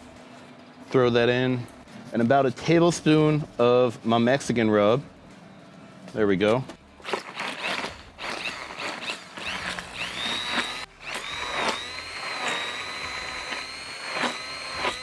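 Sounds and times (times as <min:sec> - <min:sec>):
immersion blender motor whining: 0:07.0 - 0:15.0.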